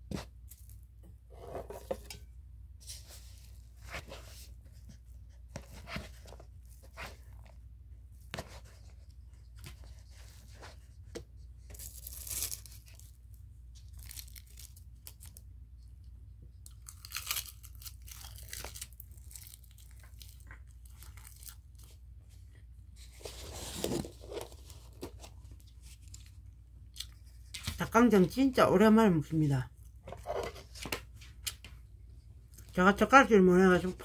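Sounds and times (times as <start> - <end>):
food packaging tearing and crackling: 11.8 - 13.2, 13.8 - 15.4, 16.7 - 21.9.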